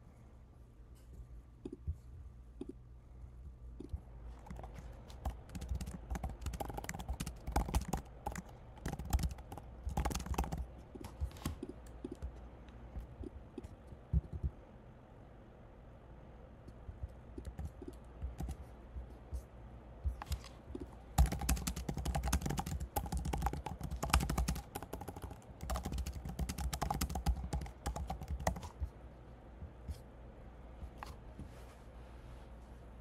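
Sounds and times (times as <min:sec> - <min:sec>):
typing on keyboard: 0:03.8 - 0:12.4, 0:16.9 - 0:18.6, 0:20.2 - 0:28.8.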